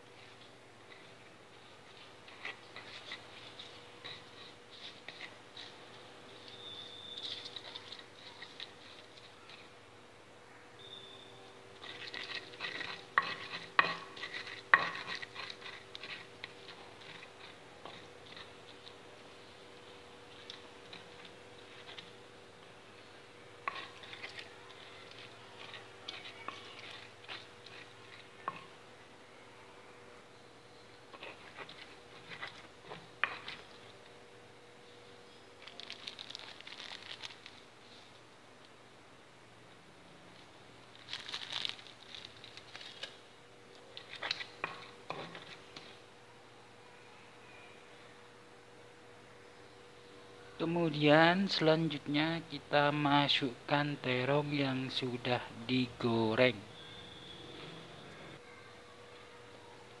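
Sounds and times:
stone pestle grinding in mortar: 0:11.8 - 0:18.5
faint crackles: 0:35.4 - 0:38.8, 0:40.3 - 0:46.0.

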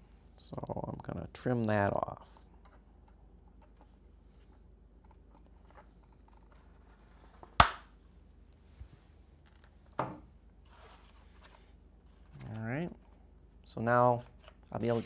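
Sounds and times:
wire cutters snapping wire: 0:07.6 - 0:07.9.

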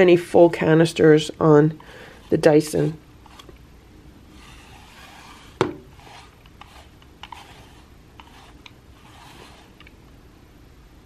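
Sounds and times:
brush scratching through cat fur: 0:01.4 - 0:03.6, 0:04.2 - 0:09.9.

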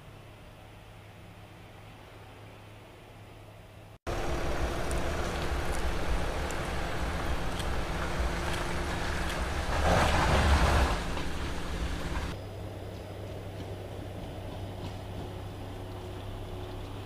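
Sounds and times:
suv engine low rumble: 0:04.1 - 0:17.0.

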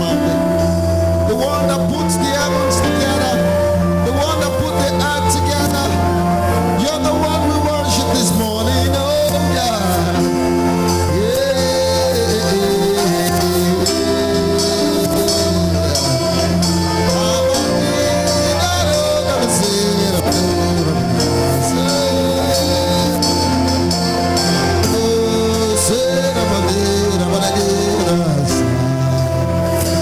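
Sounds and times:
long held chords: 0:00.0 - 0:30.0
person singing gliding lines: 0:01.2 - 0:30.0.

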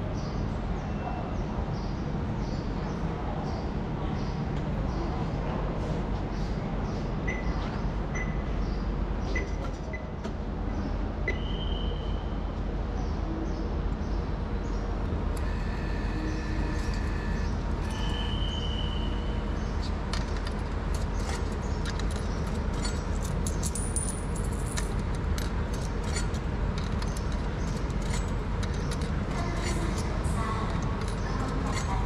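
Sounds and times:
train rumbling: 0:00.0 - 0:32.0
high wheel squeal: 0:15.4 - 0:19.9
rattling clicks and jingles: 0:19.6 - 0:32.0.

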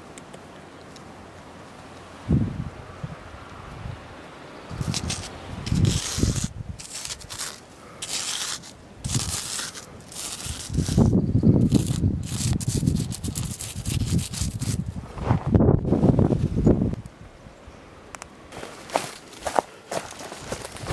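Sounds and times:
charcoal scraping on stone: 0:04.8 - 0:14.8.

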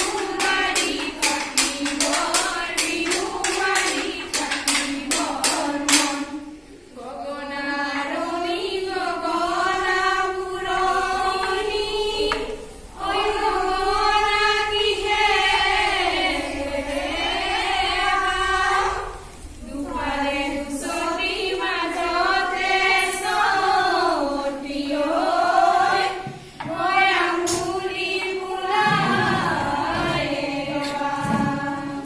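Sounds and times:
sharp hand claps: 0:00.0 - 0:06.3
women singing together unaccompanied: 0:00.0 - 0:32.0.

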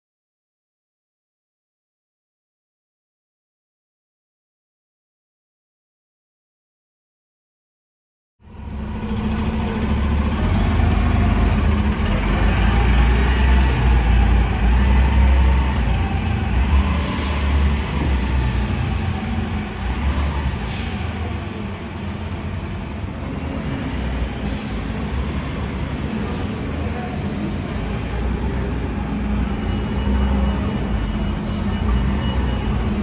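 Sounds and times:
bus engine rumbling: 0:08.4 - 0:33.0.

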